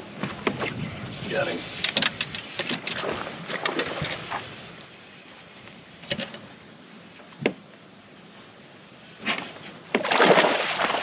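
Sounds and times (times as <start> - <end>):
fish splashing water: 10.0 - 11.0.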